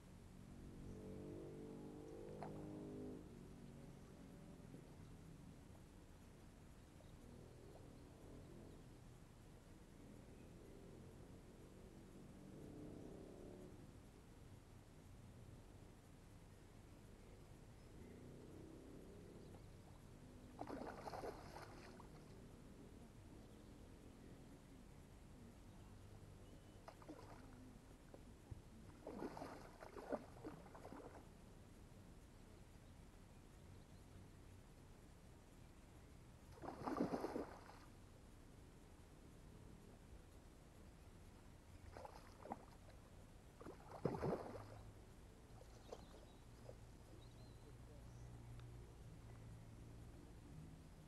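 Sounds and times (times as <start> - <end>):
fish splashing in water: 20.6 - 22.3, 26.8 - 27.5, 28.9 - 31.2, 36.5 - 37.9, 41.8 - 42.9, 43.6 - 44.9.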